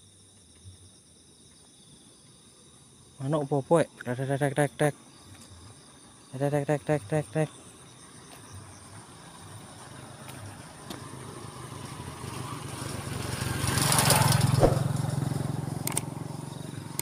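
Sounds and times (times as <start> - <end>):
motorcycle passing by: 9.0 - 17.0.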